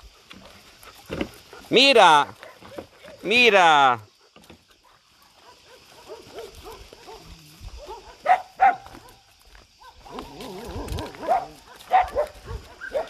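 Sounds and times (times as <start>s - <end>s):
dog barks: 1.6s - 3.3s, 5.2s - 9.2s, 9.8s - 13.0s
dogs whining: 10.0s - 13.0s.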